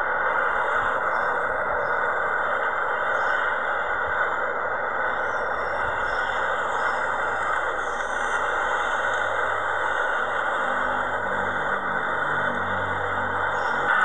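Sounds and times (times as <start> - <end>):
jet engines roaring: 5.1 - 14.0.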